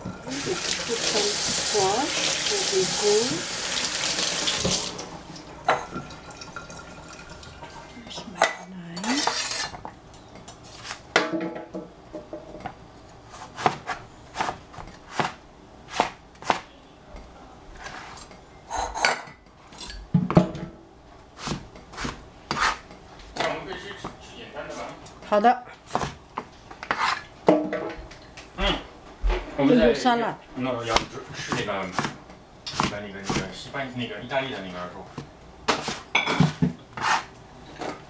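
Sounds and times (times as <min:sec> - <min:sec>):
kitchen tap running: 0:00.0 - 0:08.0
cleaver chopping on cutting board: 0:13.4 - 0:16.7, 0:30.9 - 0:33.5.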